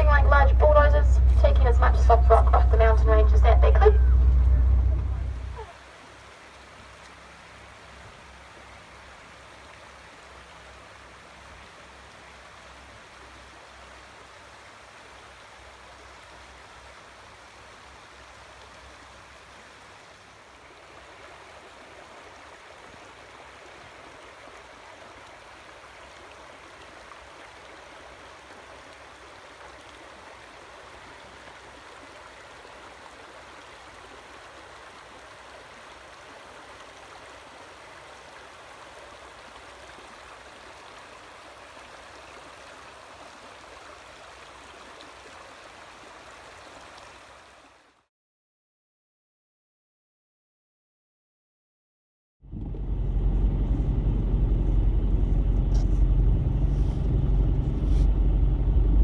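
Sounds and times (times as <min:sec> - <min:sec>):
faint low rumble: 0:00.0 - 0:07.1, 0:52.4 - 0:59.0
stream running over pebbles: 0:00.0 - 0:48.1.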